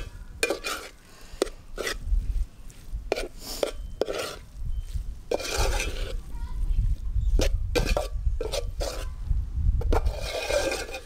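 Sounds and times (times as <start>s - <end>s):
metal spoon scraping a pot: 0.0s - 2.1s, 3.1s - 6.3s, 7.3s - 9.2s, 9.8s - 11.0s.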